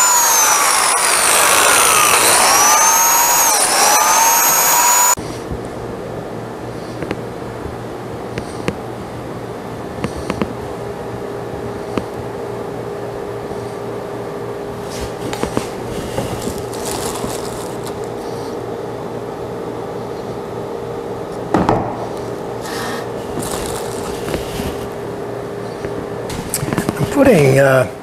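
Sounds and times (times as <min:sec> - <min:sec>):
workshop fan humming: 0:00.0 - 0:28.0
plastic bag crinkling: 0:16.0 - 0:18.2, 0:23.2 - 0:25.0.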